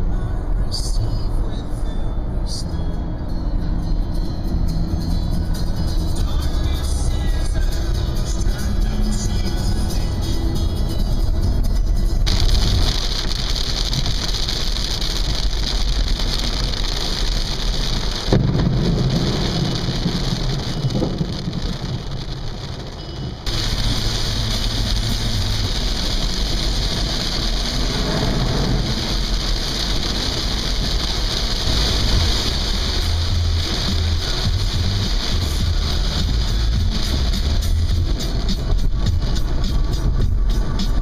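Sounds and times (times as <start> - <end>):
rain on car: 5.3 - 41.0
tyre hiss on wet road: 12.2 - 41.0.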